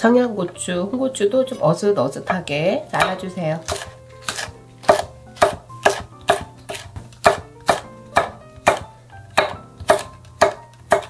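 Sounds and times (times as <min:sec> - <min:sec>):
soft background music: 0:00.0 - 0:11.0
knife chopping on wooden board: 0:03.0 - 0:11.0.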